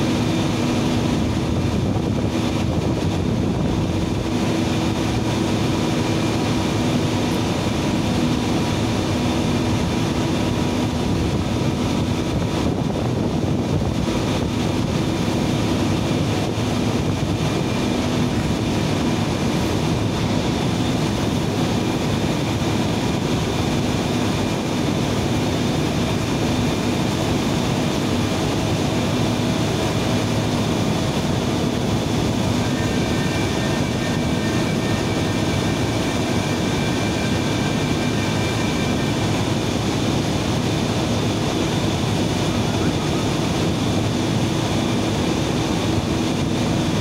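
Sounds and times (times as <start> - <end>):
turbine machinery drone: 0.0 - 47.0.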